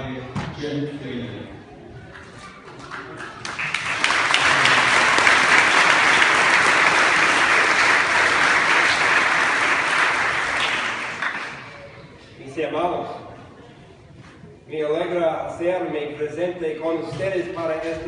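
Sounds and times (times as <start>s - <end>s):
congregation applauding: 2.8s - 12.0s.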